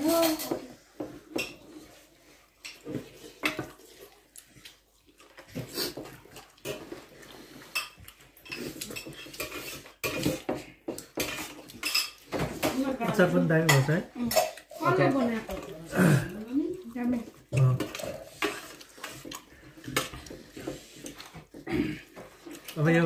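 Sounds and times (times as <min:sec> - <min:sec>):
spoons clinking on steel plates: 0:07.7 - 0:15.1.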